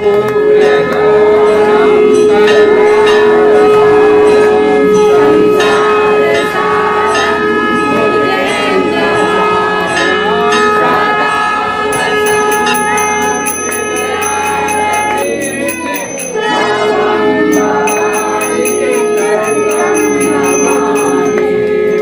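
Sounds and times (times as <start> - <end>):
long steady tone: 0.8 - 22.0
voices: 4.7 - 22.0
hand bells ringing: 11.9 - 22.0.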